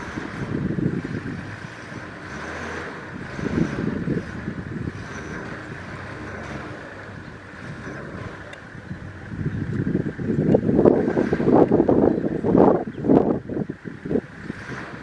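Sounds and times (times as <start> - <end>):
steady low rumble: 0.0 - 15.0
wind buffeting microphone: 0.0 - 15.0.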